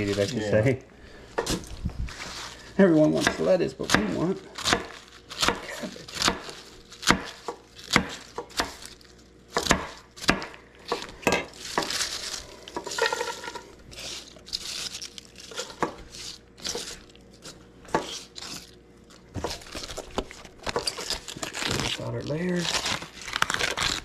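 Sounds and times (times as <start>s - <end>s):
kitchen utensils knocking and scraping: 12.8s - 13.7s.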